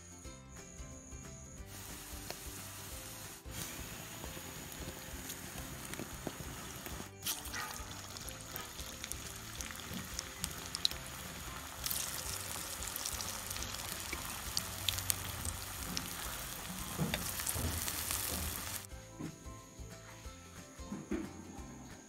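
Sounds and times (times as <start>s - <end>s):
oil sizzling and crackling: 1.6s - 18.9s.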